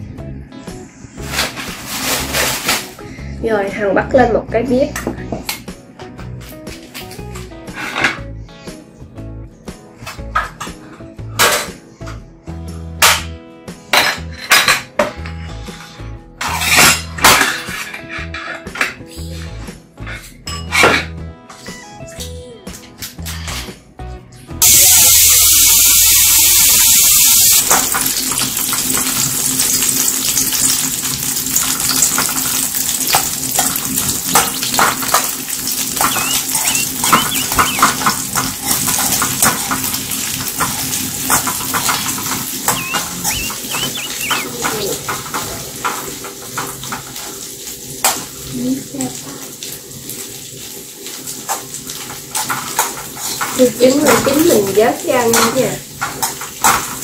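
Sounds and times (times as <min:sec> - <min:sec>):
eggs sizzling in hot oil: 0:24.6 - 0:57.0.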